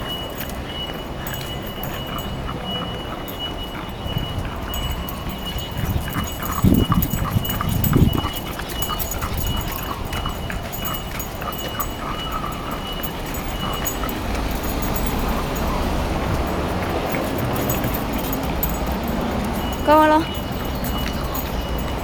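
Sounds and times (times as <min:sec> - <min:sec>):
dog noisy breathing: 0:00.2 - 0:22.0.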